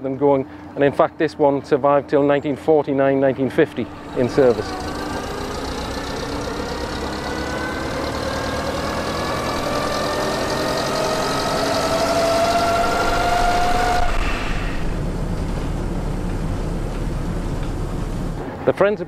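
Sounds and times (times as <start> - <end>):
bus engine with rising whine: 3.4 - 18.7.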